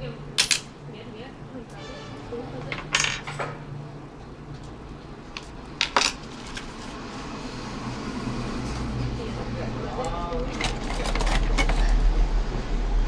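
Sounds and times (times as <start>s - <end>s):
metal tools clattering: 2.6s - 3.6s, 5.8s - 6.8s, 10.2s - 12.1s.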